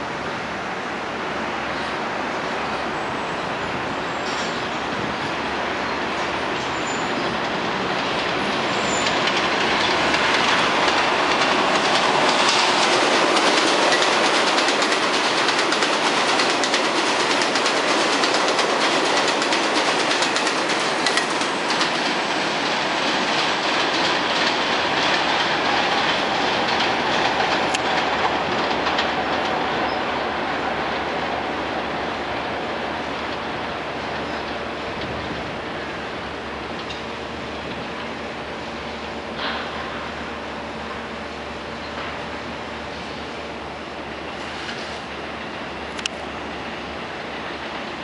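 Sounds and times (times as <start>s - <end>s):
subway train passing at speed: 0.0s - 48.0s
wheels clattering over rail joints: 6.6s - 30.0s.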